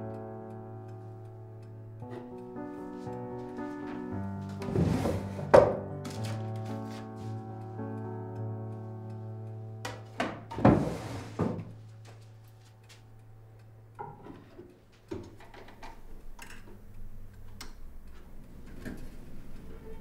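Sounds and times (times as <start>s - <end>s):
record crackle: 0.0s - 4.7s, 5.8s - 10.1s, 11.8s - 14.0s.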